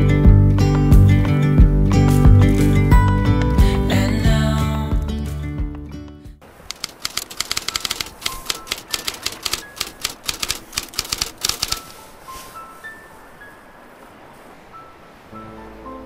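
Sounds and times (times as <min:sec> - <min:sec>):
typewriter key clicks: 0:06.6 - 0:11.9
soft high music notes: 0:11.9 - 0:16.0.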